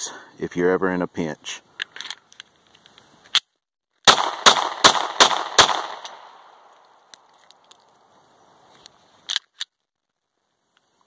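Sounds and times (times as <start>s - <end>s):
gunshot echo: 4.0s - 6.5s
pistol shots: 4.0s - 6.5s.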